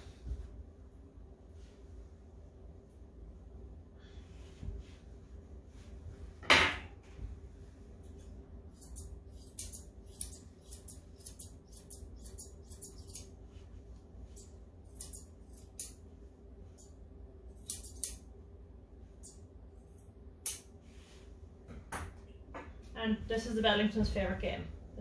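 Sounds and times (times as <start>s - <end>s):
grooming scissors snipping: 8.7s - 13.4s, 14.4s - 16.0s, 17.6s - 18.2s, 20.0s - 20.7s.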